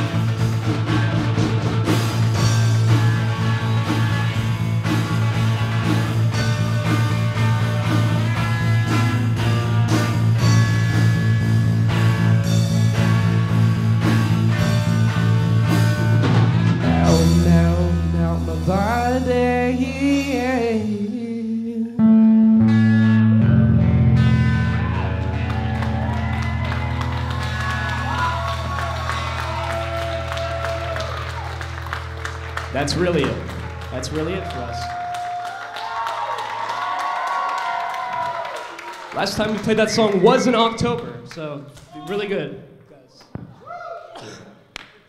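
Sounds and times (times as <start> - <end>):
bending lead guitar line: 0.0 - 21.0, 22.0 - 35.7
rock band playing live: 0.0 - 21.0, 22.0 - 36.2.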